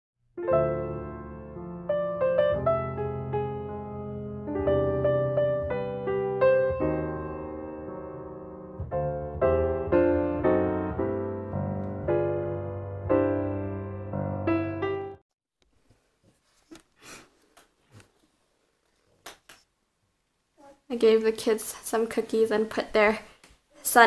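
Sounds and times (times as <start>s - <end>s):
piano music: 0.4s - 15.2s.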